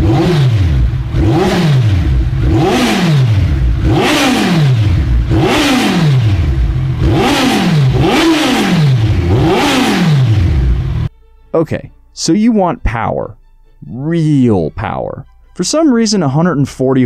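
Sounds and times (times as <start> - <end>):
motorcycle engine revving: 0.0 - 11.1.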